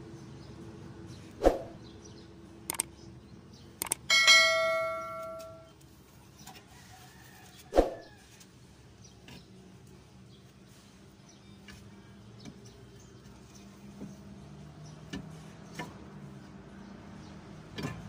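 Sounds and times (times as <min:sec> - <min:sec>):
light clicks: 0:02.7 - 0:02.9, 0:03.8 - 0:04.0
metal struck ringing: 0:04.1 - 0:05.7.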